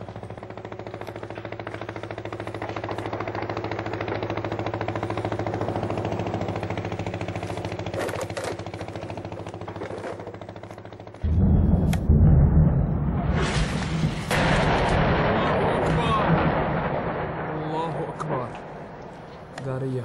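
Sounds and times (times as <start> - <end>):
engine running with fast pulse: 0.0 - 15.3
sharp cracks: 0.2 - 20.0.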